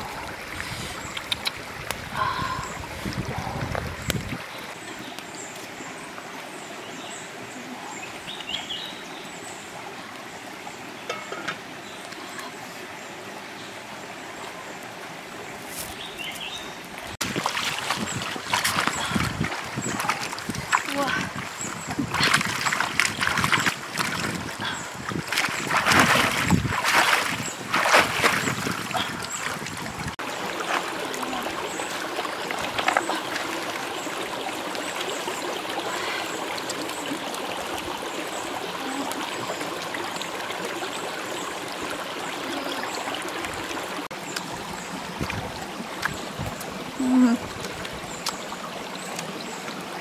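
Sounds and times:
stream trickling: 0:00.0 - 0:50.0
water splashing: 0:15.7 - 0:50.0.

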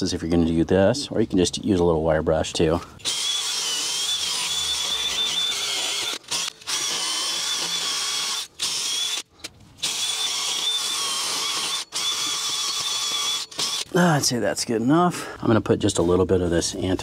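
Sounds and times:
drill with wire wheel scouring rust: 0:03.0 - 0:13.9.

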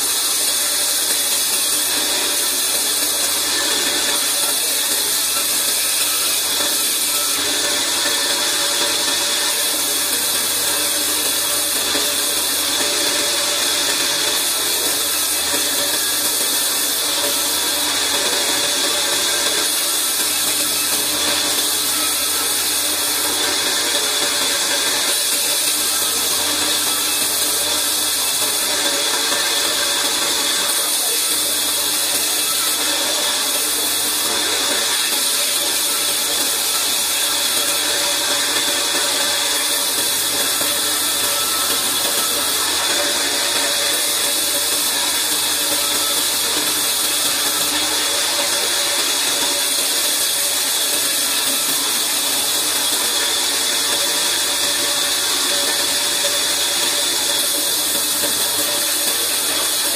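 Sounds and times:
band saw cutting wood: 0:00.0 - 0:59.9.

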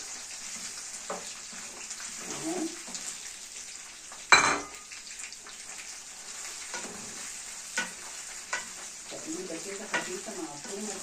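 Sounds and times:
sausages sizzling in a frying pan: 0:00.0 - 0:11.0
wooden spatula knocking on pan: 0:09.8 - 0:10.2.

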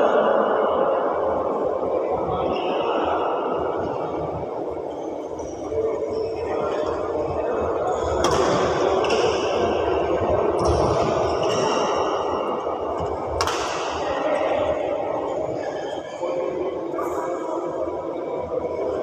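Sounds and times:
echoing hall din: 0:00.0 - 0:19.0
racket hitting shuttlecock: 0:13.4 - 0:14.0.

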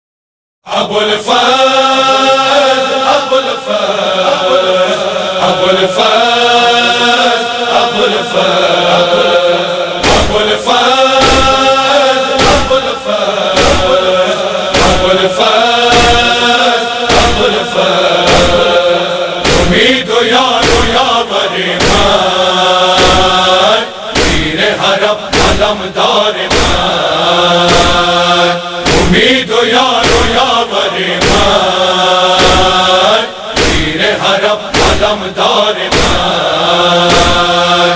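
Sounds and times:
wordless chanted vocals: 0:00.6 - 0:37.9
heavy thumping beat: 0:10.0 - 0:10.6, 0:11.2 - 0:11.7, 0:12.3 - 0:12.9, 0:13.5 - 0:16.4, 0:17.1 - 0:21.2, 0:21.8 - 0:22.3, 0:23.0 - 0:23.5, 0:24.1 - 0:24.7, 0:25.3 - 0:28.2, 0:28.8 - 0:30.6, 0:31.2 - 0:31.7, 0:32.4 - 0:34.0, 0:34.7 - 0:36.4, 0:37.1 - 0:37.6.

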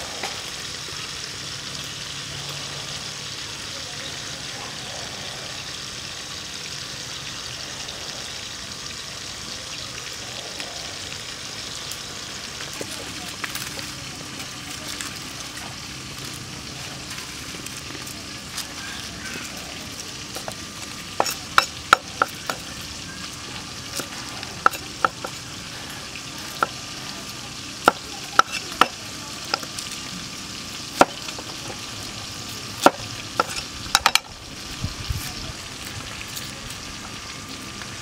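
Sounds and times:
cleaver chopping on wooden block: 0:21.2 - 0:22.6, 0:24.0 - 0:25.3, 0:27.8 - 0:29.6.

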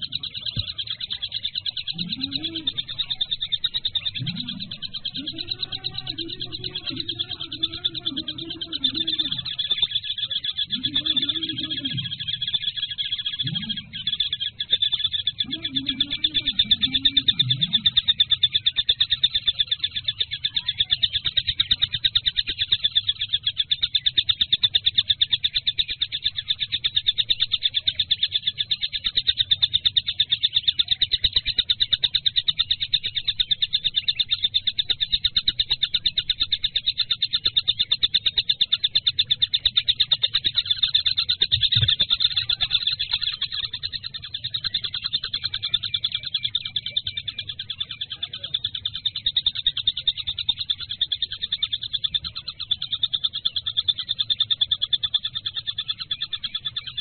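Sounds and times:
kingfisher trilling: 0:00.0 - 0:57.0.

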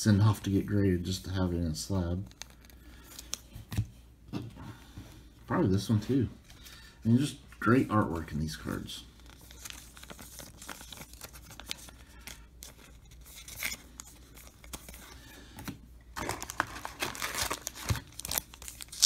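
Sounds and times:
foil wrapper crinkling: 0:09.2 - 0:15.3, 0:16.2 - 0:19.0.

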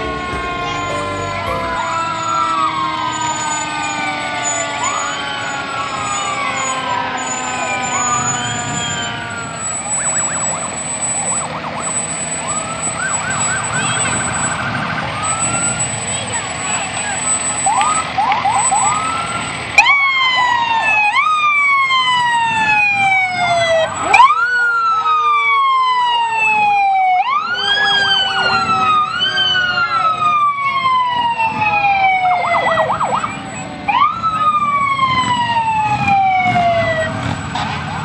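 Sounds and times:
siren warbling yelp: 0:00.0 - 0:37.5
fire truck siren wailing: 0:00.0 - 0:38.0.

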